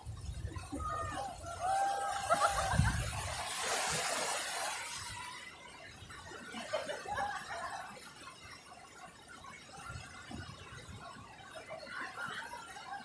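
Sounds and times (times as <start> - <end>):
wave washing in: 0.6 - 5.8
high-pitched laughter: 1.8 - 3.2
surf breaking: 1.9 - 5.4.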